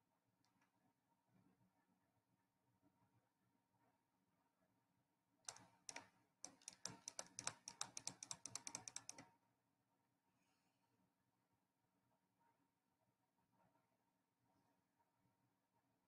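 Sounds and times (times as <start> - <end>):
typing on computer keyboard: 5.5 - 9.3.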